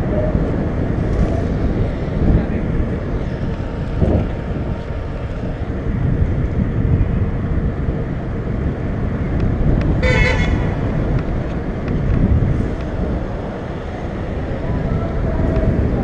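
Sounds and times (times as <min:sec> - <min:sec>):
wind buffeting microphone: 0:00.0 - 0:16.0
horn toot: 0:10.0 - 0:10.7.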